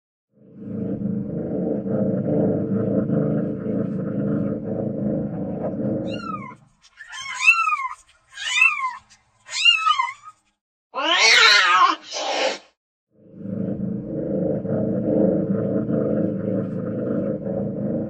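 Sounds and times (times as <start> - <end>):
cat meowing: 11.0 - 12.0.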